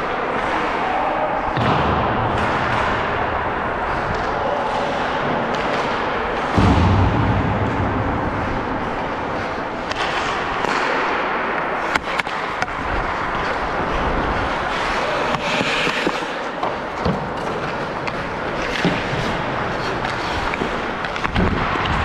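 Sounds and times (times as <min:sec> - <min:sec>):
heavy thump: 0:06.6 - 0:08.9
skate blades scraping ice: 0:11.8 - 0:22.0.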